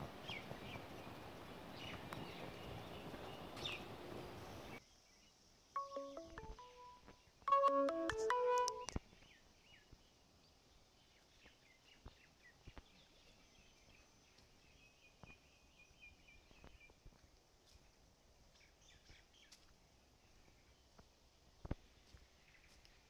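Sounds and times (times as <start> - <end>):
faint birdsong chirps and trill: 0.2 - 7.4, 8.8 - 17.2, 17.8 - 23.0.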